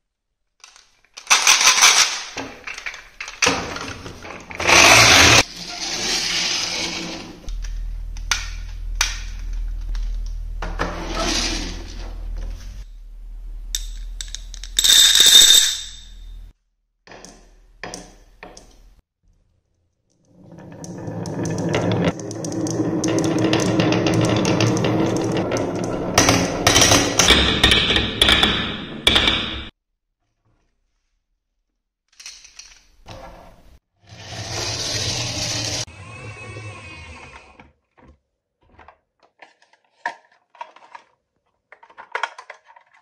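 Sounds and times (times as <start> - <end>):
toy truck rolling on tabletop: 20.2 - 27.0, 34.1 - 37.5.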